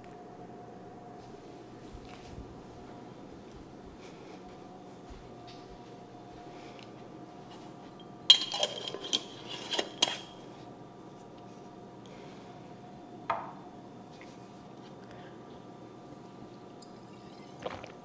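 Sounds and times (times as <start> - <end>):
faint steady hum: 0.0 - 18.0
kitchenware clinking: 8.0 - 10.4.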